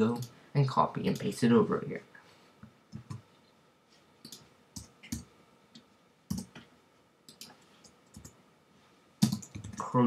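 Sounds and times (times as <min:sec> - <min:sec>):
keyboard and mouse clicks: 0:02.9 - 0:03.2, 0:04.2 - 0:06.7, 0:07.3 - 0:08.4, 0:09.2 - 0:09.9.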